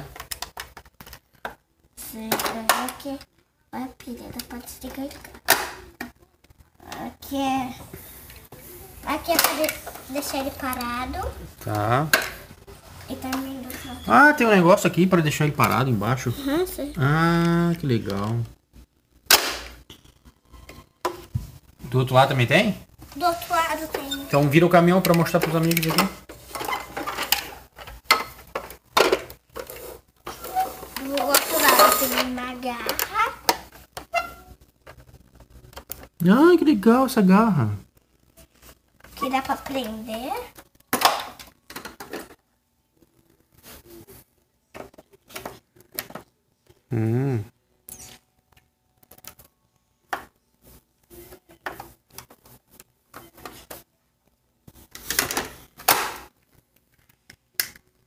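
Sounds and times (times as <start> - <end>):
plastic toy truck clattering: 23.8 - 33.6.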